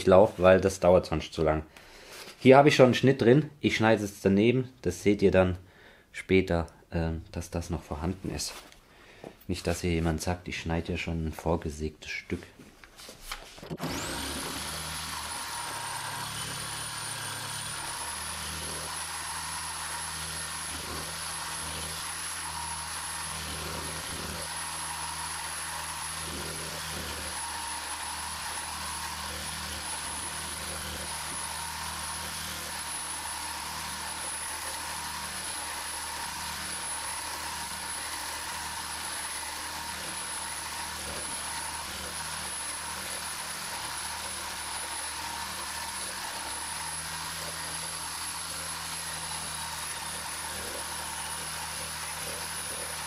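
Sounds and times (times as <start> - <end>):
reciprocating saw cutting steel: 13.8 - 53.0.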